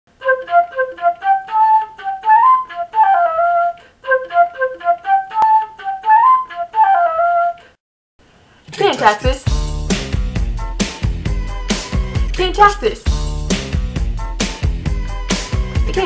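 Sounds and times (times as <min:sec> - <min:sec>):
flute playing quick melody: 0:00.2 - 0:07.6.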